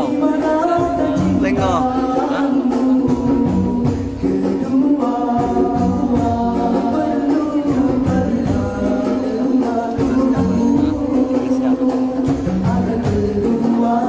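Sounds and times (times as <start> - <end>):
men singing together: 0.0 - 14.0
steady rhythmic beat: 0.0 - 14.0.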